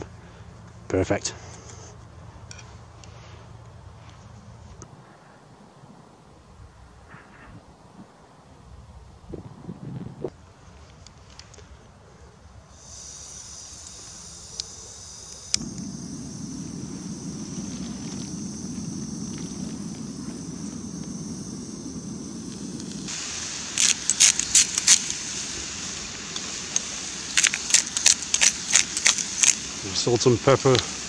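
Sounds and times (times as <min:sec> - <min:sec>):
gas burner roaring: 0:12.7 - 0:31.0
gas hissing from valve: 0:12.7 - 0:31.0
vegetables sizzling in frying pan: 0:20.1 - 0:31.0.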